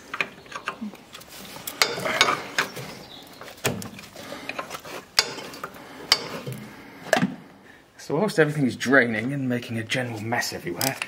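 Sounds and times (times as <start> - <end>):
steel scraping on steel: 4.2 - 6.7.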